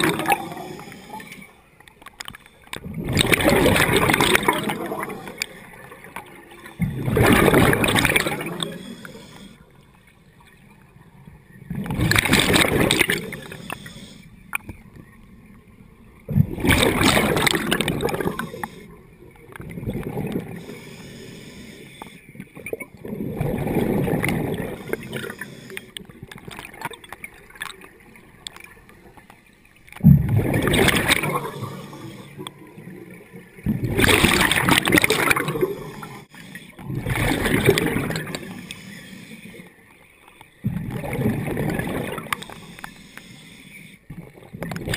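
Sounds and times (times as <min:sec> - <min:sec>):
exhaled bubbles gurgling underwater: 0:00.0 - 0:44.9
regulator hiss: 0:20.6 - 0:22.2, 0:42.4 - 0:44.0.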